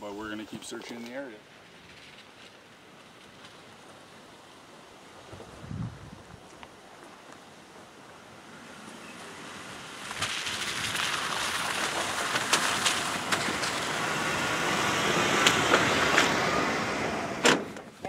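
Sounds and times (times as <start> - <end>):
tyres on dirt track: 0.0 - 18.0
stones clicking under tyres: 9.9 - 14.1.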